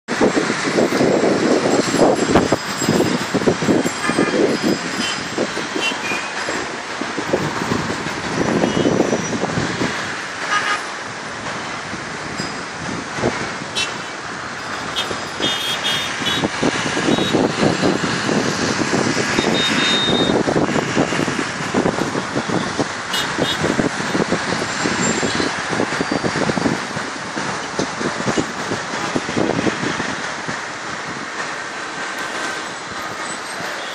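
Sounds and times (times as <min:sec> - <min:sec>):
road traffic passing: 0:00.1 - 0:33.9
car horn toots: 0:04.0 - 0:05.2, 0:08.6 - 0:09.3, 0:10.5 - 0:10.9, 0:13.7 - 0:14.2, 0:14.8 - 0:17.5, 0:19.4 - 0:21.2, 0:23.1 - 0:23.7.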